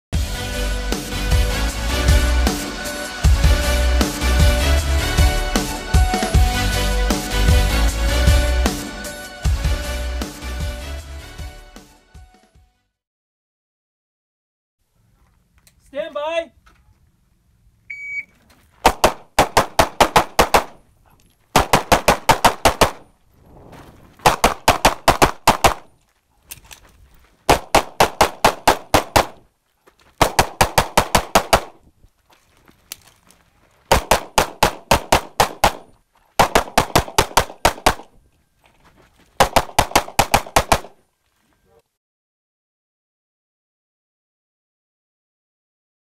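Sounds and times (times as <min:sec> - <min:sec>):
shot timer beep: 0:17.9 - 0:18.3
rapid pistol fire: 0:18.8 - 0:20.8, 0:21.6 - 0:23.1, 0:24.2 - 0:25.9, 0:27.5 - 0:29.4, 0:30.2 - 0:31.8, 0:33.9 - 0:38.1, 0:39.4 - 0:41.0.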